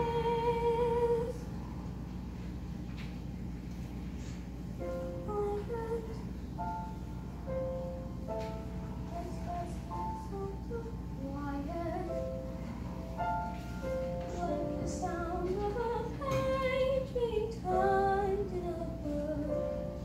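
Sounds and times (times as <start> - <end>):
girl singing slowly: 0.0 - 1.5, 5.1 - 6.3, 9.0 - 12.4, 14.2 - 20.0.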